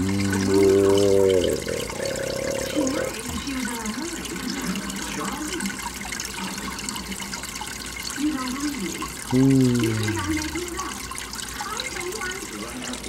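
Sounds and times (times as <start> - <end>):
running water in aquarium: 0.0 - 13.0.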